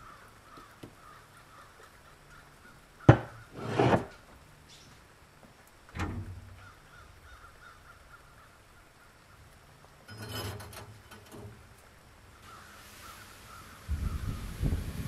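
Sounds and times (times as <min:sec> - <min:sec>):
faint bird caws: 0:00.0 - 0:03.5, 0:06.5 - 0:09.6, 0:12.3 - 0:14.6
metal clatter on grate: 0:10.1 - 0:11.7.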